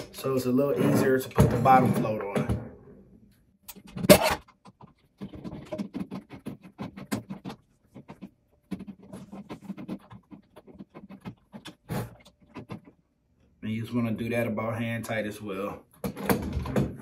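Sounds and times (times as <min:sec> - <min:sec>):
scratchy clicks and rattles: 0:03.7 - 0:13.2.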